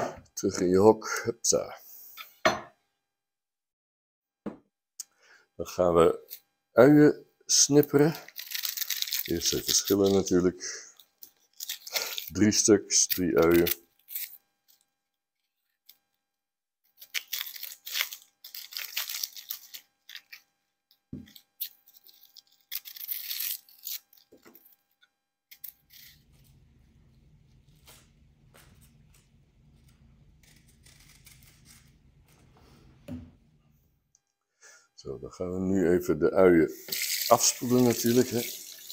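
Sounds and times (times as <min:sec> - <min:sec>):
onion skins crackling and tearing: 0:08.0 - 0:14.9, 0:16.9 - 0:20.5, 0:21.3 - 0:24.9, 0:29.8 - 0:32.0, 0:36.8 - 0:38.9.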